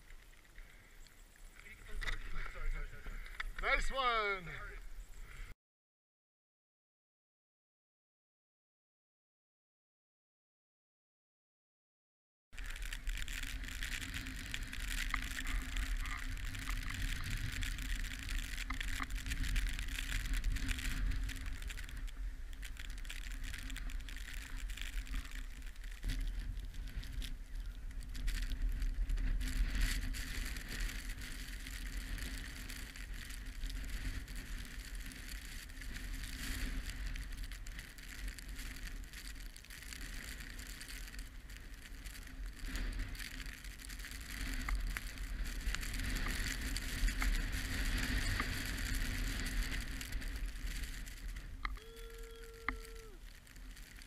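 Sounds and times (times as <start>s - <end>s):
skis sliding over snow: 0.0s - 5.5s, 12.6s - 54.0s
wind rumbling on microphone: 12.6s - 54.0s.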